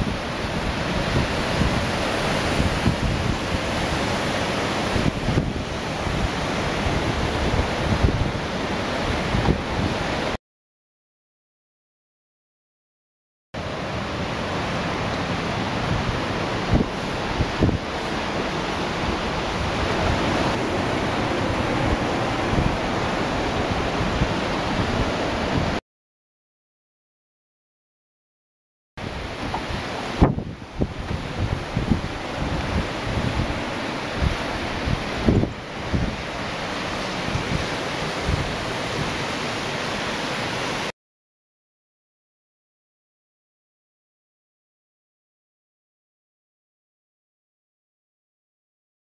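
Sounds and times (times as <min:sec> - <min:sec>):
wind buffeting microphone: 0:00.0 - 0:10.4, 0:13.9 - 0:25.8, 0:29.0 - 0:40.8.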